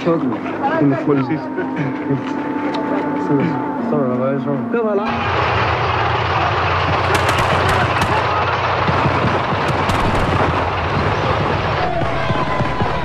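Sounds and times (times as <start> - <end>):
armoured vehicle engine running: 5.1 - 13.0
gunfire cracks: 6.9 - 13.0.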